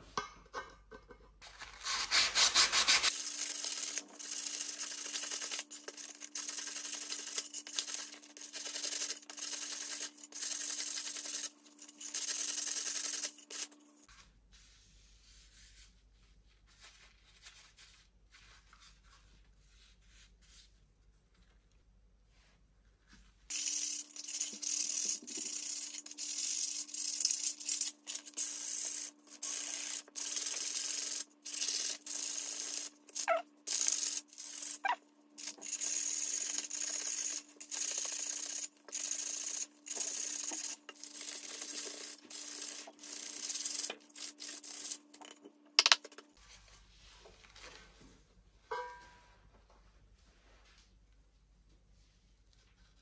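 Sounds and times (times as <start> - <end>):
sandpaper rubbing on metal: 1.6 - 13.7, 23.5 - 45.1.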